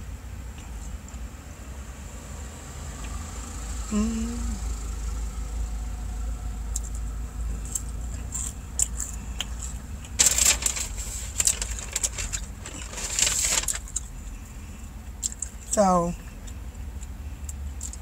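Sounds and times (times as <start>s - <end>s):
car hum: 0.0s - 18.0s
person eating crunchy fries: 6.7s - 14.4s, 16.3s - 18.0s.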